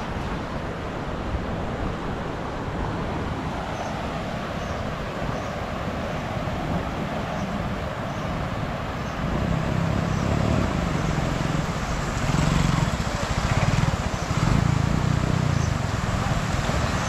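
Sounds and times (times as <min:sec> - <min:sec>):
steady rushing noise: 0:00.0 - 0:17.0
vehicle engine running: 0:09.3 - 0:17.0.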